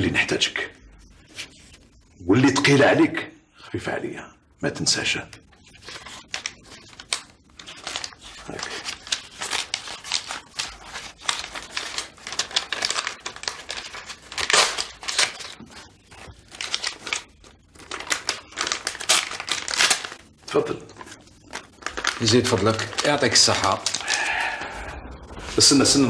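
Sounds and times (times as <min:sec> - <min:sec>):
paper rustling: 0:05.5 - 0:26.0.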